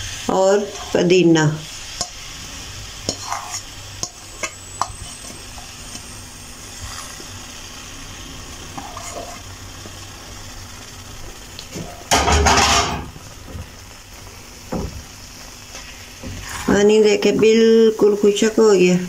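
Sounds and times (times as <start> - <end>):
food sizzling in oil: 0.0 - 19.0
spatula stirring mixture: 1.9 - 7.4, 8.6 - 10.0.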